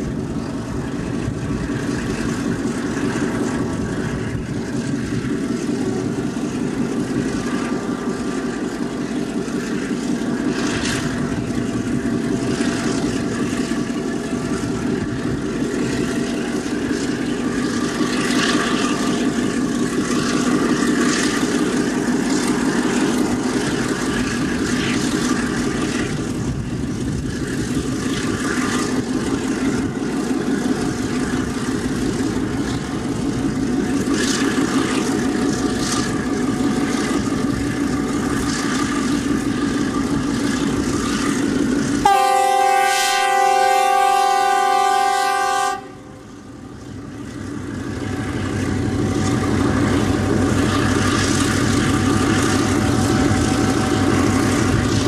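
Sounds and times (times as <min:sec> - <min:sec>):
diesel locomotive engine running: 0:00.0 - 0:55.0
multi-tone horn blast: 0:42.1 - 0:46.1.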